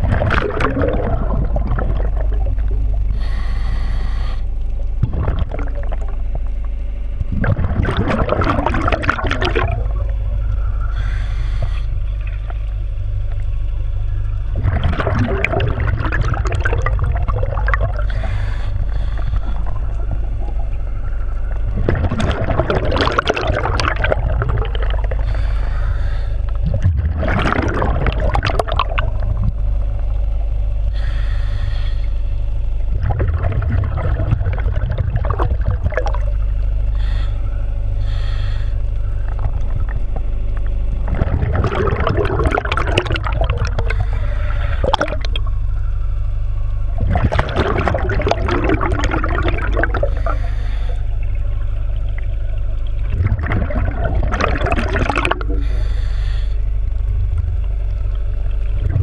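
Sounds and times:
bubbly exhaled air underwater: 0:00.0 - 0:59.0
steady low hum: 0:00.0 - 0:59.0
hissing regulator inhalations: 0:03.1 - 0:04.6, 0:10.6 - 0:12.4, 0:17.9 - 0:20.2, 0:25.0 - 0:26.7, 0:30.9 - 0:32.4, 0:36.9 - 0:39.4, 0:43.7 - 0:45.2, 0:49.8 - 0:51.6, 0:55.4 - 0:56.7.

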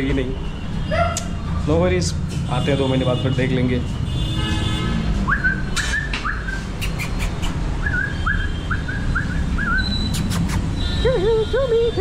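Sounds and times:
animal chirping calls: 0:06.3 - 0:10.8.

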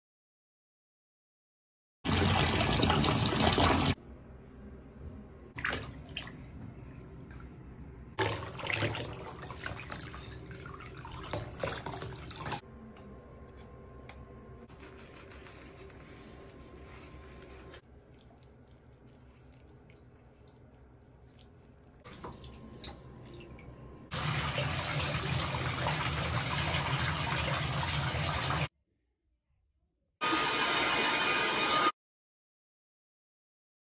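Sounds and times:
tap gushing into bathtub: 0:02.1 - 0:04.0, 0:08.2 - 0:12.6, 0:21.3 - 0:28.7
water poured from jug splashing: 0:02.1 - 0:04.0, 0:08.2 - 0:12.6
water dripping: 0:05.0 - 0:12.6, 0:17.9 - 0:28.5.

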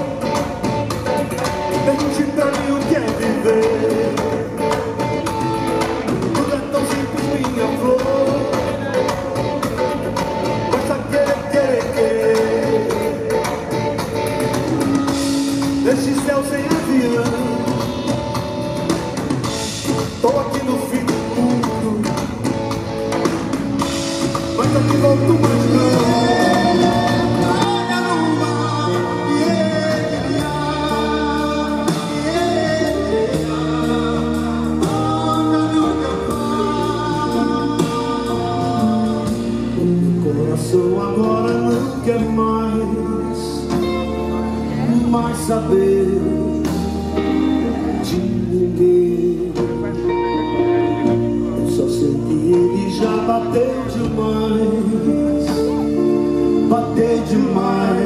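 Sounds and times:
live rock band playing: 0:00.0 - 0:58.0
man singing: 0:00.0 - 0:58.0.

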